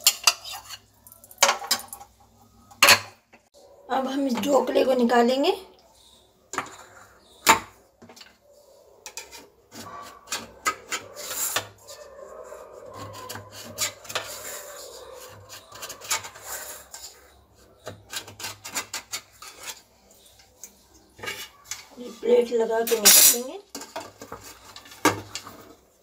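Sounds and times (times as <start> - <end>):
knife scraping metal tin: 0.0 - 0.9, 9.0 - 12.1, 12.8 - 20.6.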